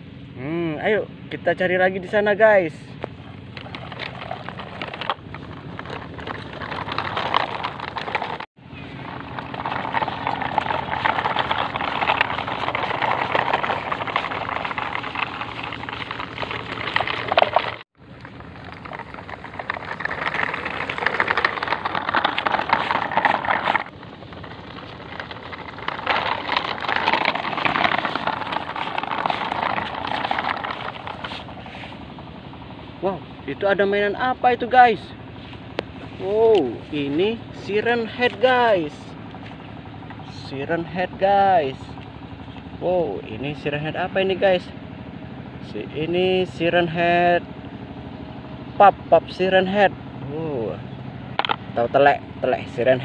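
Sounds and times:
toy trucks rustling through grass: 3.5s - 32.0s.

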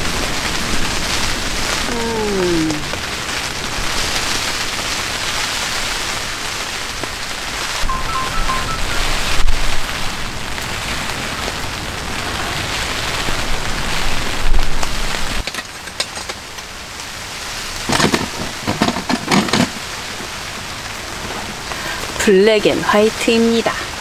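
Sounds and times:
rain pattering on a tent: 0.0s - 7.9s, 9.0s - 24.0s
wind gusts buffeting tent: 0.0s - 7.9s, 9.4s - 15.5s.

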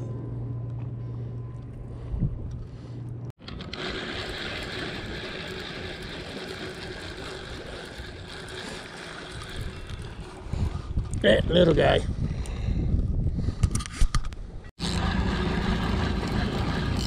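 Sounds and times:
low engine hum: 0.0s - 3.3s, 14.8s - 17.0s.

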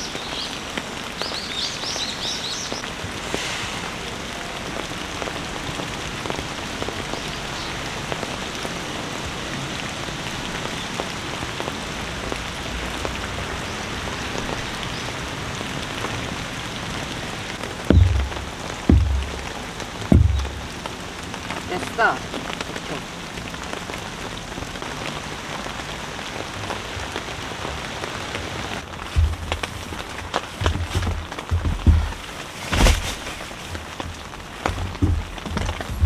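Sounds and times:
heavy rain: 0.0s - 36.0s
loud low thump: 17.9s - 20.8s.

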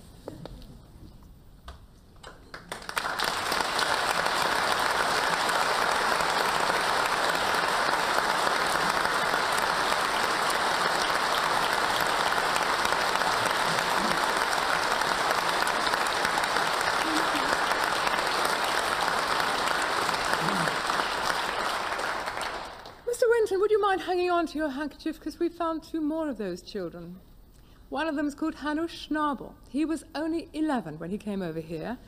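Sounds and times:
audience applause: 2.5s - 23.0s.

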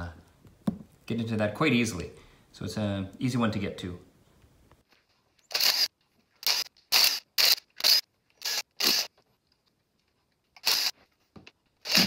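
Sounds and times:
cordless power driver bursts: 5.5s - 9.1s, 10.6s - 10.9s.

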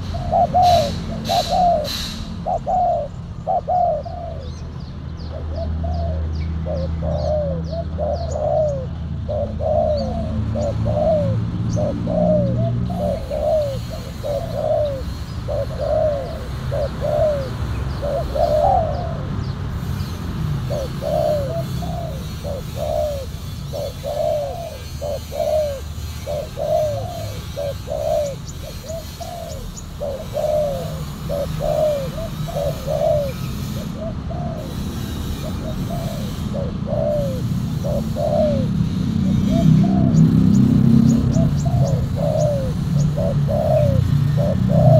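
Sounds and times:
doves cooing: 0.0s - 44.9s.

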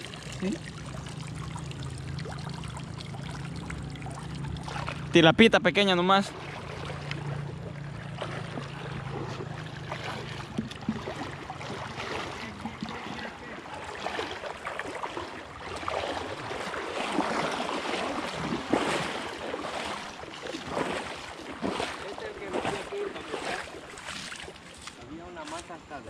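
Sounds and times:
river water rushing and splashing: 0.0s - 26.0s.

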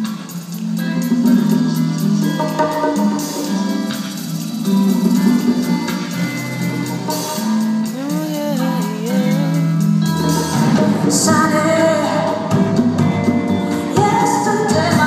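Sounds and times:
live band with string orchestra: 0.0s - 15.0s
woman singing into a microphone: 7.8s - 9.9s, 11.1s - 12.6s, 13.8s - 15.0s.

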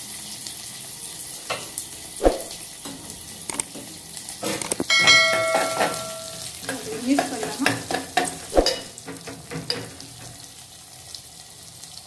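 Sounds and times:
food sizzling in hot oil: 0.0s - 12.0s
spoon knocking on pot: 4.8s - 9.9s
ringing metal clang: 4.9s - 6.5s.

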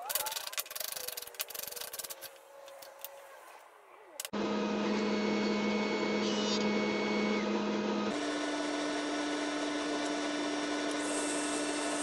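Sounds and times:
jointer motor humming: 4.3s - 12.0s.

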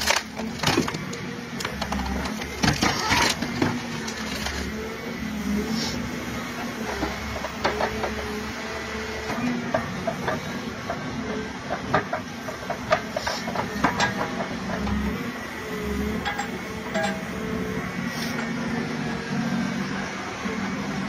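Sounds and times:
wood cracking and roots tearing: 0.0s - 1.0s
excavator engine running: 0.0s - 21.0s.

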